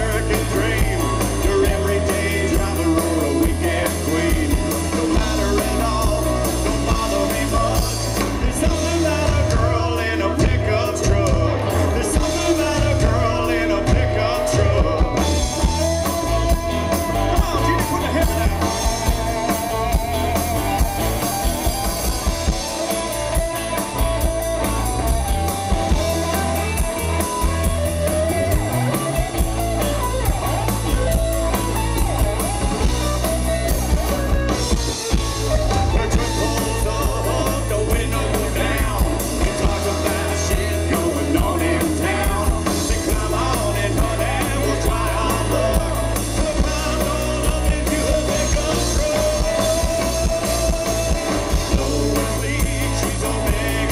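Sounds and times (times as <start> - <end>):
person singing: 0.0 - 21.4, 34.0 - 53.9
bass guitar: 0.0 - 53.9
drum kit: 0.0 - 53.9
electric guitar: 0.0 - 53.9.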